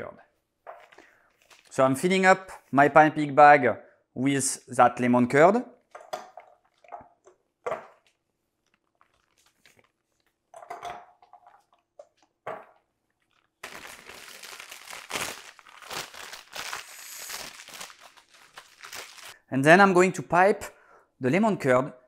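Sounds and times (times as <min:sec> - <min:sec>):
pastry bag crinkling: 0:13.1 - 0:19.4.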